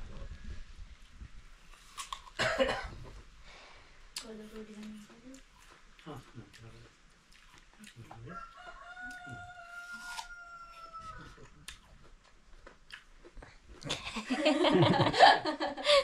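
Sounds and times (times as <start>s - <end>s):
rooster crowing: 8.3s - 11.5s
people laughing loudly: 13.9s - 16.0s.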